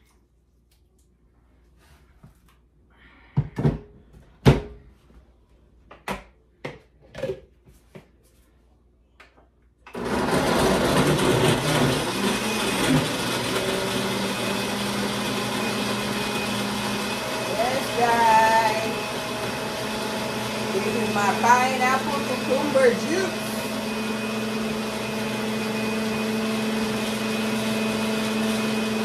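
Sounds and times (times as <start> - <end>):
blender motor running: 9.9 - 29.0.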